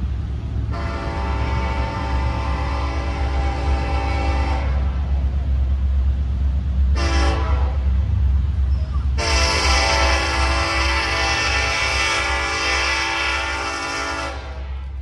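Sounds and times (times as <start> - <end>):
train rumbling: 0.0 - 15.0
locomotive air horn: 0.7 - 5.1, 6.9 - 8.0, 9.2 - 14.9.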